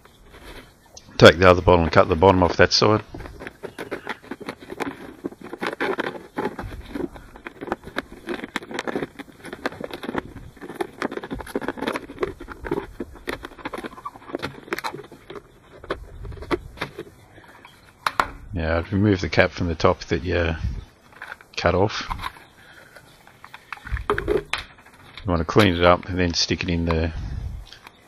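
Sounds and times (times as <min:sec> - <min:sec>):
knife sawing plastic bottle: 0:03.1 - 0:17.0.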